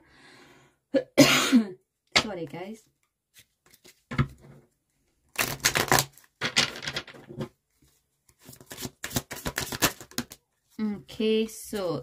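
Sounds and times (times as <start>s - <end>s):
cards being shuffled: 3.3s - 4.3s, 8.3s - 10.4s.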